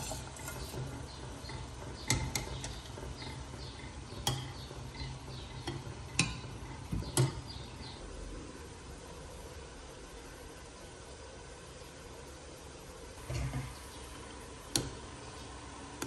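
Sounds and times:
wire skimmer clinking on metal pot: 0.0s - 7.5s
low steady hum: 0.0s - 16.0s.

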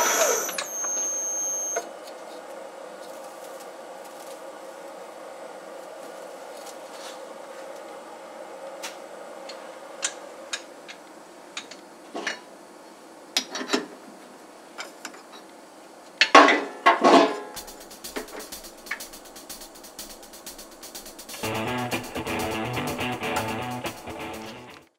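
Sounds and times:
metal lathe humming: 0.0s - 1.0s.

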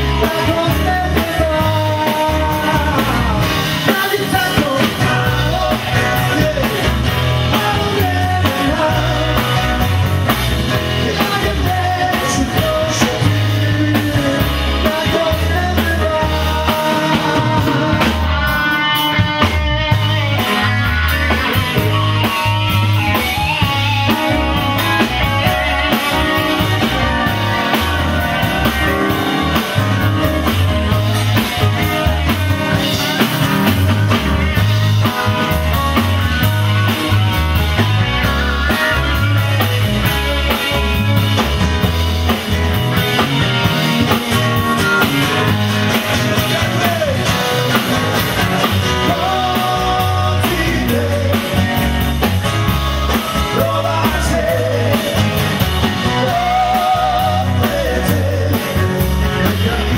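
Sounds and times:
man singing: 0.0s - 35.5s, 44.0s - 59.9s
acoustic and electric guitars: 0.0s - 59.9s
bass line: 0.0s - 59.9s
drum beat: 14.1s - 59.8s.

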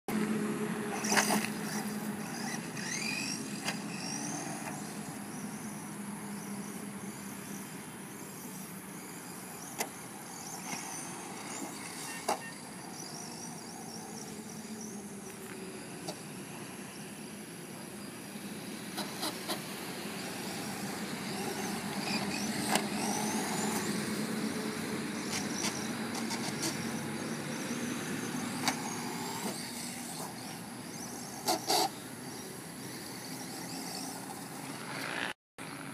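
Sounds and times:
road traffic drone: 0.1s - 35.9s
electric motor whining: 0.2s - 7.6s, 18.9s - 35.4s.

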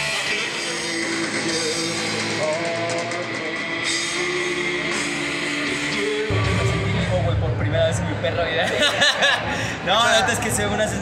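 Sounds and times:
person singing: 0.0s - 7.2s
heavy rock music: 0.0s - 8.4s.

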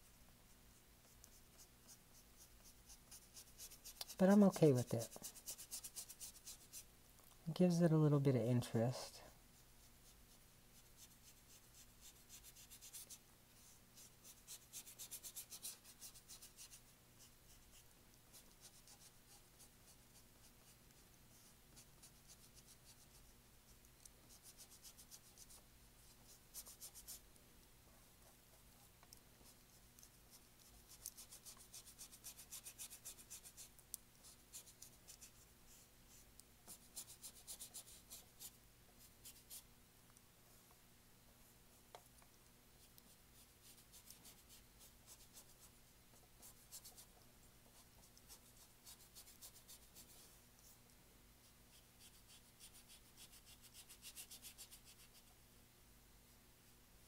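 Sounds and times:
faint steady hum: 0.0s - 57.0s
paintbrush scrubbing on canvas: 1.2s - 6.9s.

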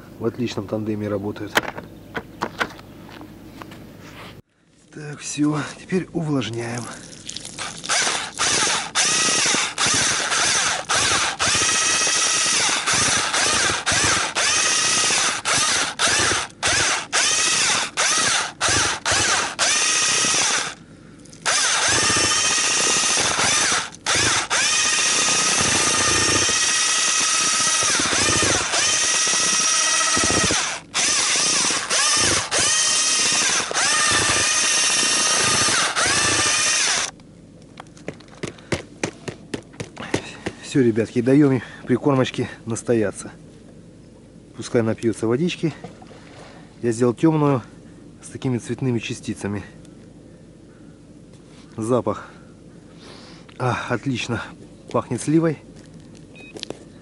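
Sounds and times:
electric drill mixing paddle whine: 7.6s - 20.8s, 21.4s - 37.2s.

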